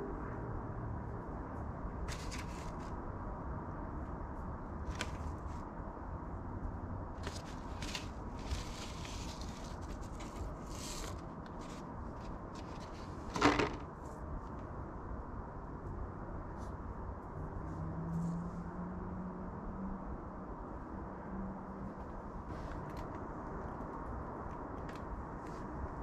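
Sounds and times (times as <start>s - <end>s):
hands rustling potting soil: 7.2s - 14.7s
plastic cover clacking: 12.6s - 13.8s.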